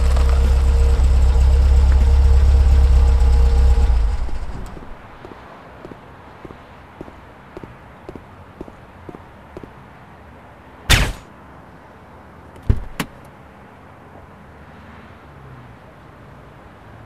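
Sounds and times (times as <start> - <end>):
car door opening clack: 12.6 - 13.2
car door shutting thud: 12.6 - 13.2.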